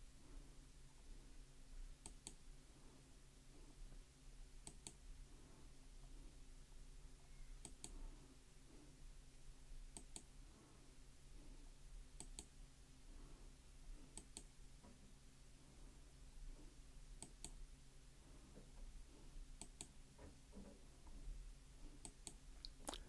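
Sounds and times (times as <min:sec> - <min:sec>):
low steady hum: 0:00.0 - 0:23.0
computer mouse clicks: 0:02.0 - 0:02.4, 0:04.6 - 0:05.0, 0:07.6 - 0:08.0, 0:09.9 - 0:10.3, 0:12.2 - 0:12.5, 0:14.1 - 0:14.5, 0:17.2 - 0:17.6, 0:19.6 - 0:19.9, 0:22.0 - 0:22.4.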